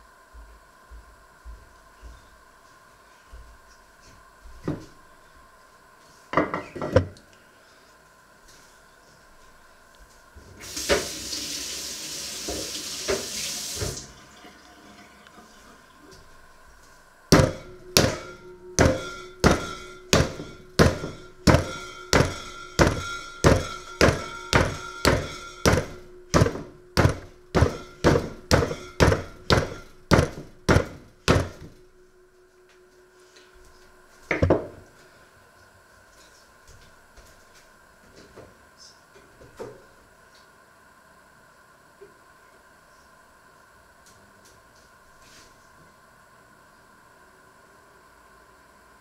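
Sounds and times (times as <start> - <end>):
wooden pin pounding dough in pot: 17.3 - 31.7.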